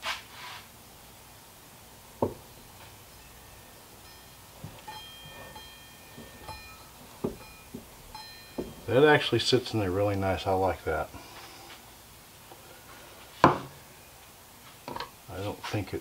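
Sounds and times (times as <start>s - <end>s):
faint high ringing tones: 2.2s - 11.7s, 13.6s - 14.3s
metal knocks and clicks: 4.6s - 8.9s.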